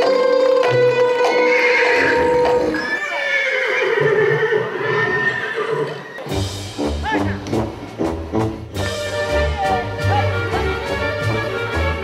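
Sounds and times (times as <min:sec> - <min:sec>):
horse whinnying: 0:01.1 - 0:06.3.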